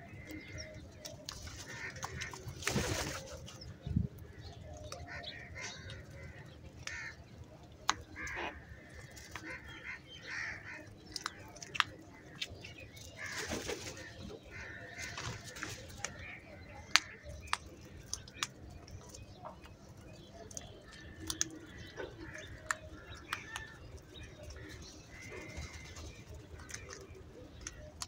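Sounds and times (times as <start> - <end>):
beaks tapping on concrete: 0.2 - 13.8, 14.5 - 28.0.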